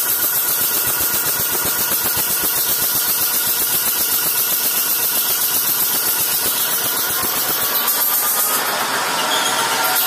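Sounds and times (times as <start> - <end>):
air compressor pumping: 0.0 - 10.0
cooling fans whirring: 5.1 - 10.0.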